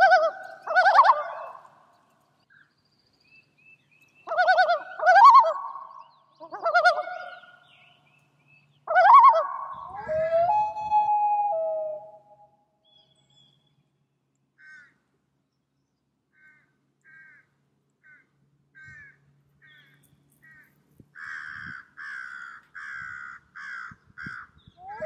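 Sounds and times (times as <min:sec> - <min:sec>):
crows cawing: 0:14.6 - 0:15.0, 0:16.3 - 0:24.6.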